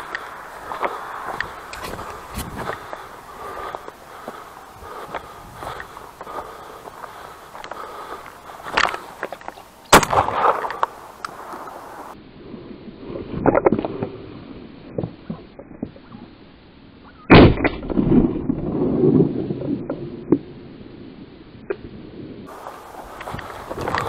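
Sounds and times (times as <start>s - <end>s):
knocks and scuffs on rocks: 0.0s - 10.9s
shotgun shot with echo: 9.9s - 10.7s.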